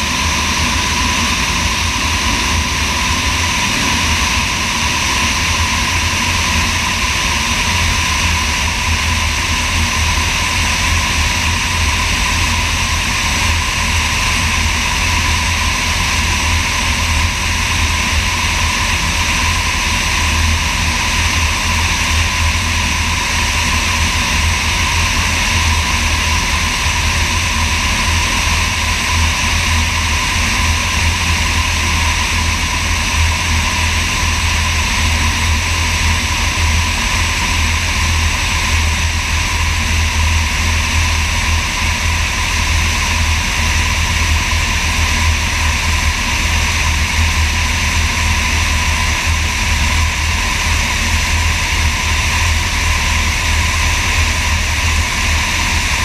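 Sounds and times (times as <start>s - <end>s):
light aircraft engine droning: 0.0s - 56.0s.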